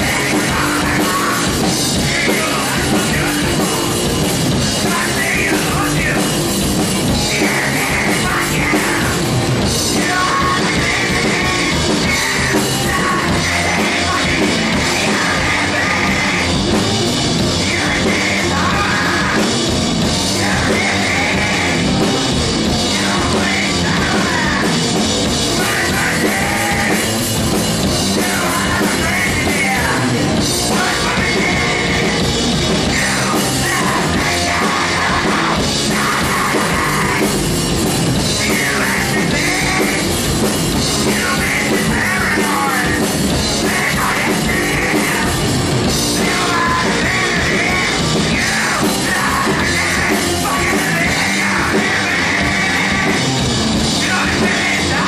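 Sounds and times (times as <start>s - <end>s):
drum kit: 0.0s - 55.0s
electric bass: 0.0s - 55.0s
electric guitar: 0.0s - 55.0s
person singing: 0.0s - 55.0s.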